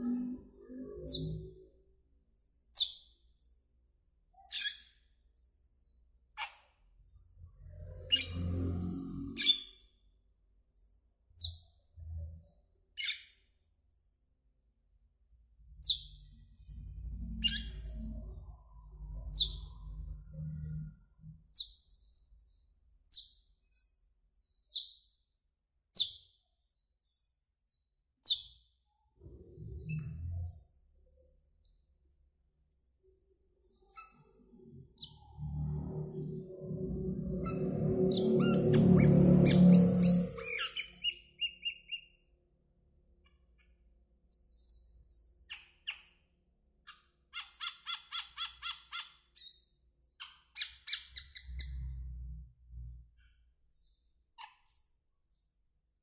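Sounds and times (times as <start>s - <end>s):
starling chirping: 0.0s - 1.8s, 4.3s - 5.6s, 15.8s - 20.9s, 33.6s - 42.3s, 46.9s - 52.4s
low rumble: 15.4s - 21.5s, 29.2s - 31.1s, 34.4s - 41.1s.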